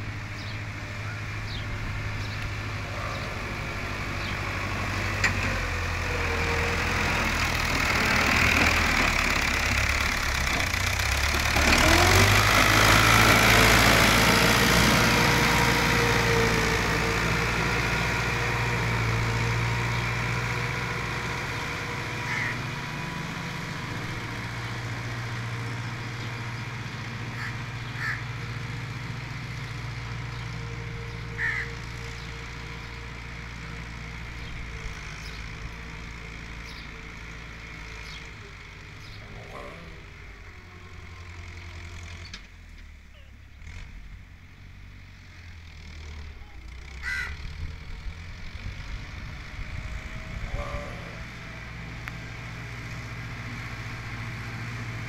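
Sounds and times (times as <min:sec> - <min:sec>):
tractor diesel engine under load: 0:00.0 - 0:55.0
crow cawing: 0:22.2 - 0:22.6, 0:27.3 - 0:28.3, 0:31.4 - 0:31.8, 0:47.0 - 0:47.4.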